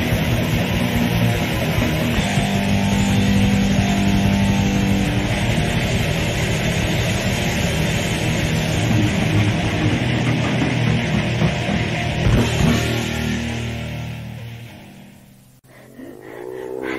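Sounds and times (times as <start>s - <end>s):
death metal band playing: 0.0s - 16.9s.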